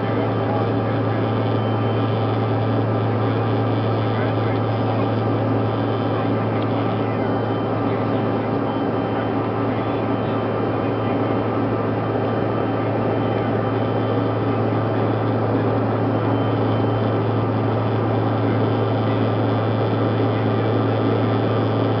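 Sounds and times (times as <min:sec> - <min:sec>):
faint high whine: 0:00.0 - 0:22.0
jet cabin noise: 0:00.0 - 0:22.0.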